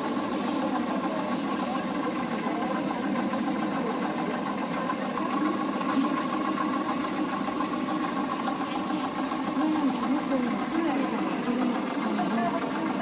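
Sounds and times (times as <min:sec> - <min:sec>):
faint voices: 0:00.0 - 0:13.0.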